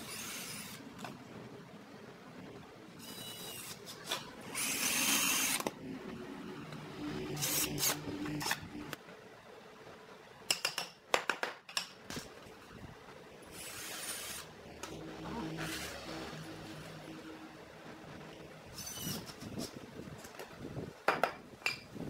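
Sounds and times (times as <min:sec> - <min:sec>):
cordless drill into wood: 0:04.5 - 0:05.7.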